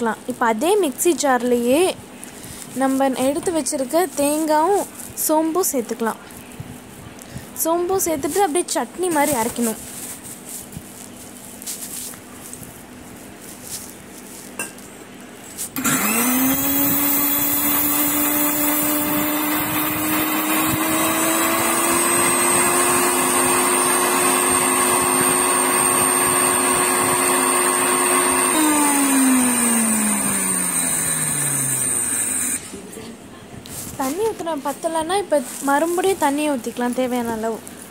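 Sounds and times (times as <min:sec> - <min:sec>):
mixer grinder motor whine: 0:15.8 - 0:32.7.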